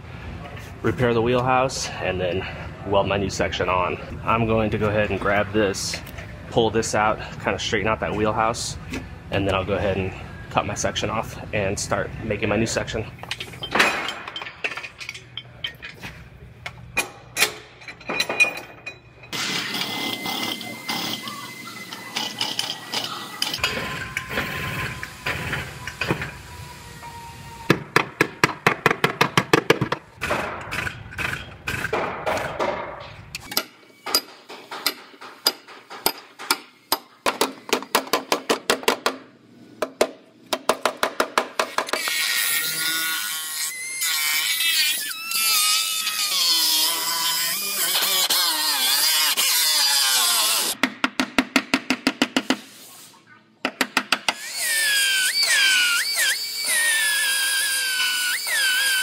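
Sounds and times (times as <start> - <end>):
cut-off wheel grinding steel: 19.4 - 27.4.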